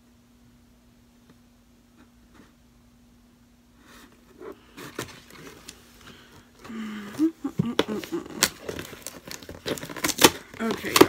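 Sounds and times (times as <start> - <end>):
cardboard box handled and opened: 3.8 - 11.0.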